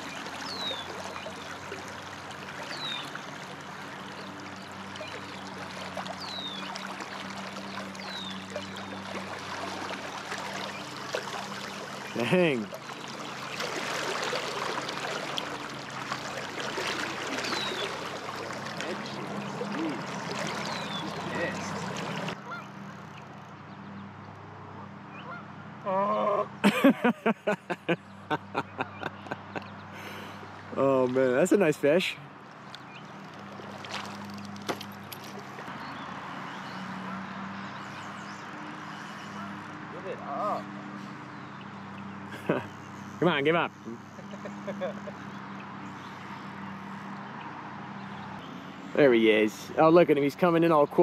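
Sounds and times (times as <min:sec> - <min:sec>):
river current rushing: 0:00.0 - 0:23.0
river current flowing: 0:00.0 - 0:25.5, 0:26.6 - 0:51.0.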